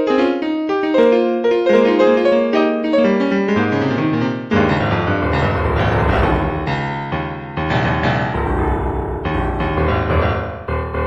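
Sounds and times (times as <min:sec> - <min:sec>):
piano music: 0:00.0 - 0:11.0.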